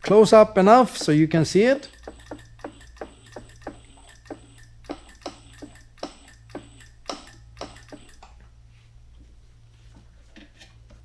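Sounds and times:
steady low hum: 0:00.0 - 0:11.0
bead roller ticking: 0:00.8 - 0:08.2.

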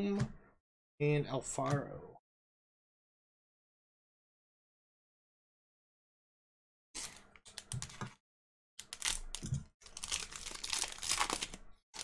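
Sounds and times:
foil wrapper crinkling and tearing: 0:08.8 - 0:12.0.

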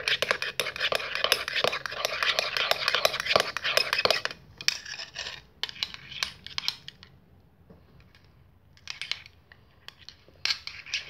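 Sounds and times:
slime clicking and scraping bowl: 0:00.0 - 0:07.1, 0:09.8 - 0:11.0.

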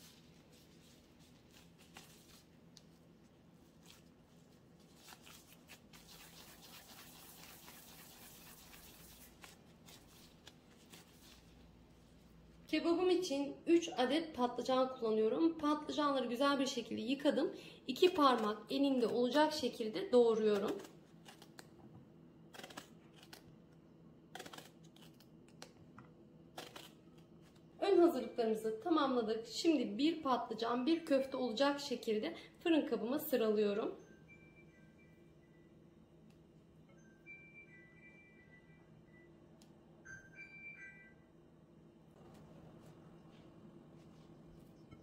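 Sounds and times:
plastic gloves rustling: 0:00.0 - 0:12.6.

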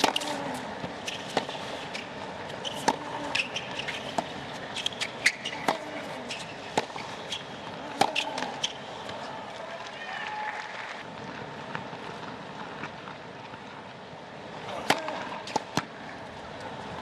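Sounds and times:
rackets hitting tennis ball: 0:00.0 - 0:09.9, 0:14.7 - 0:16.1
sneaker squeaks on court: 0:01.9 - 0:07.5.

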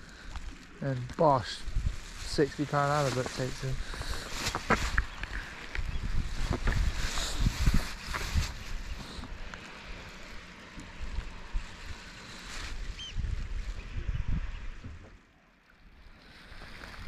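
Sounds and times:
wind on microphone: 0:01.6 - 0:09.5, 0:10.9 - 0:15.2.

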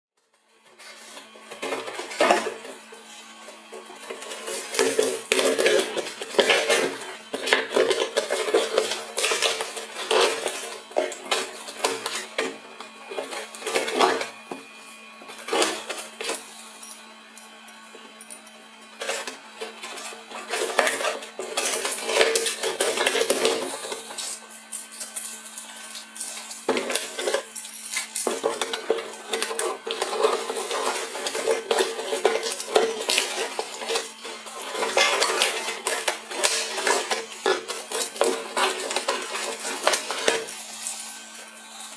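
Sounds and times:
plastic wrap crinkling: 0:00.7 - 0:14.4, 0:18.9 - 0:41.9
scissors cutting cardboard: 0:04.1 - 0:14.7.

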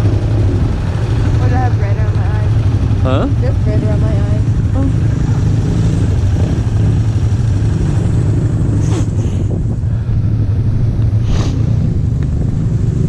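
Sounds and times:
atv engine idling: 0:00.0 - 0:13.0
brief hissing noises: 0:11.2 - 0:11.6.

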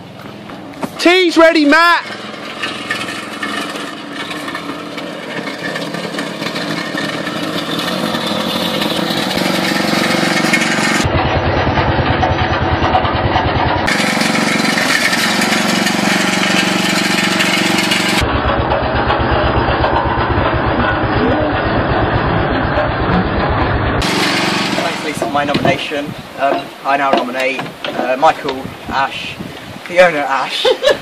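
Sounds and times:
small petrol engine running: 0:01.4 - 0:25.7.

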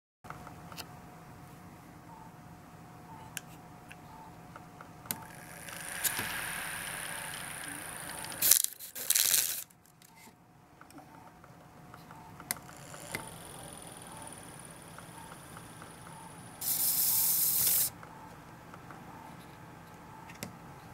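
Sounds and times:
small motor whining: 0:05.2 - 0:08.9, 0:12.6 - 0:17.9.

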